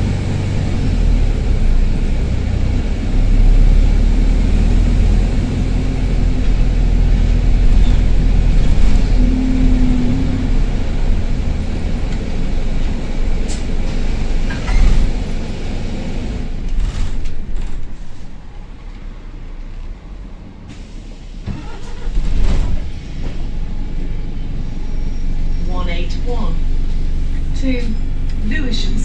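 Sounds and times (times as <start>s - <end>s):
turbo exhaust blowing: 0.0s - 19.5s
bus diesel engine running: 0.0s - 29.0s.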